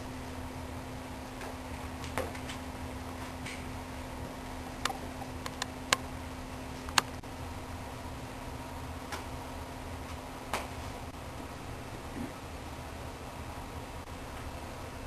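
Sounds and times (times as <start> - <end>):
low hum: 0.0 - 15.0
sharp clicks and taps: 4.8 - 6.0.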